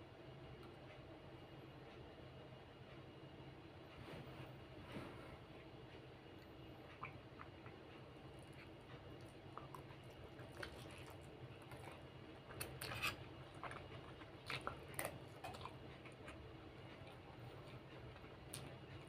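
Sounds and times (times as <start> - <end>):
low steady hum: 0.0 - 19.0
person chewing: 8.4 - 19.0.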